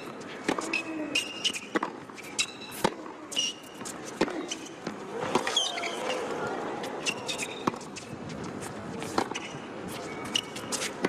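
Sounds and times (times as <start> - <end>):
rackets striking tennis ball: 0.0 - 6.0
low crowd hum: 0.0 - 11.0
shoes squeaking on court: 0.0 - 11.0.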